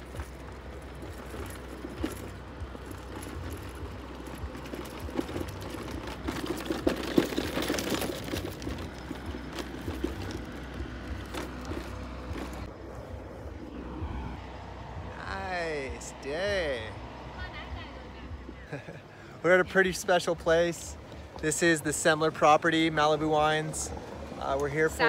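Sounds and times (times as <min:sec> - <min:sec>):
wheels clicking and knocking on stone: 0:00.0 - 0:12.8, 0:19.6 - 0:25.0
electric scooter motor hum: 0:00.0 - 0:25.0.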